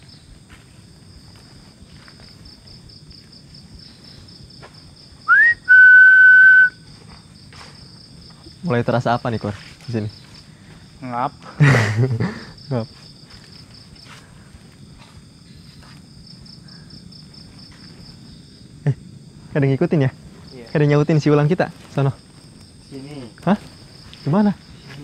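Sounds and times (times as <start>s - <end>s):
crickets trilling: 0.0s - 25.0s
insects chirring: 0.0s - 25.0s
person whistling: 5.3s - 6.8s.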